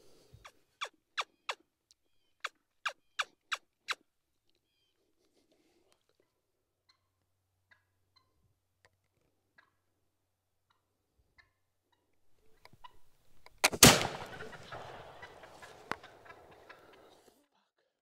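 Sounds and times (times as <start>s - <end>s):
flintlock gunshot echoing: 13.6s - 16.5s.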